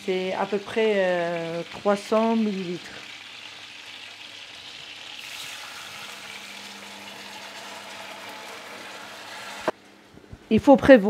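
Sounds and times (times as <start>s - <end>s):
hot pan sizzling: 0.0s - 9.8s
broth pouring into pan: 2.7s - 9.7s.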